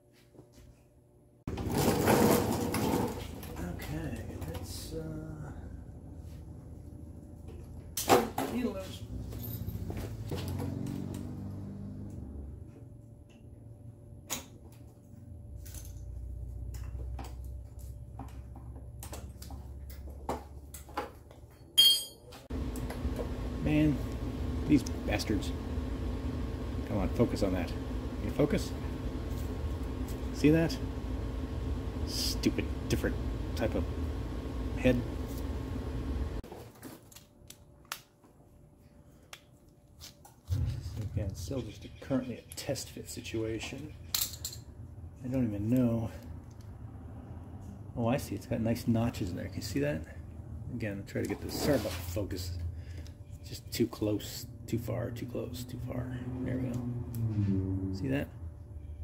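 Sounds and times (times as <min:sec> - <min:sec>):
low steady hum: 0:21.5 - 0:36.4, 0:40.5 - 0:59.0
sharp metallic clink: 0:21.8 - 0:22.3
low rumble: 0:40.5 - 0:42.0.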